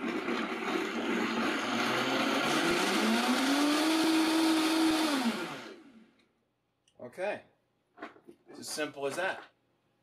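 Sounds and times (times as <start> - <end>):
blender motor running: 0.0 - 6.0.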